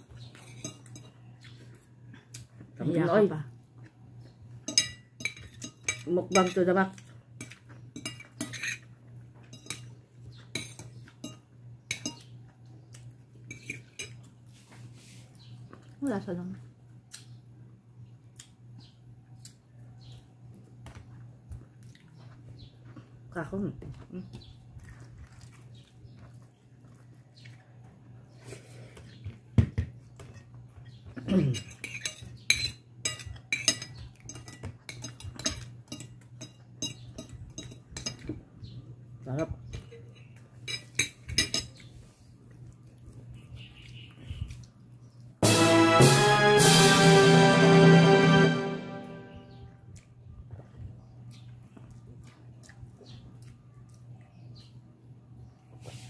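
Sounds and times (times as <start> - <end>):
fingers clinking on glass bowl: 0.2 - 1.2, 4.6 - 6.6, 10.5 - 12.3, 31.6 - 38.3.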